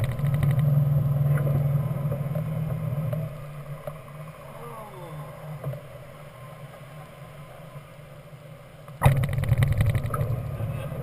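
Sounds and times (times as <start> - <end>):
wheel rumbling on runway: 0.0 - 4.5, 9.0 - 11.0.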